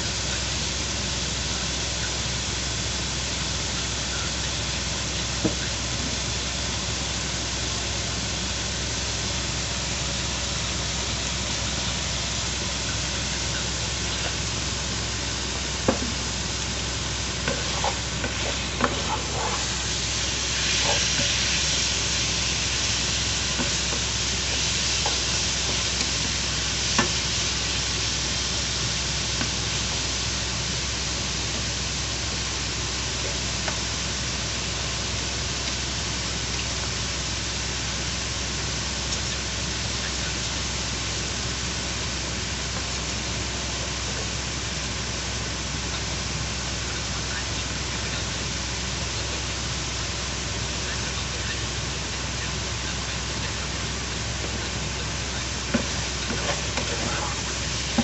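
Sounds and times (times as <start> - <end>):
meat sizzling in a pan: 0.1 - 58.0
wooden spatula scraping pan: 17.5 - 19.9, 55.7 - 58.0.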